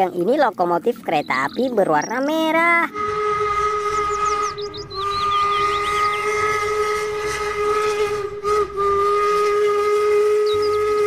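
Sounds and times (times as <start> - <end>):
steam locomotive whistle: 2.9 - 11.0.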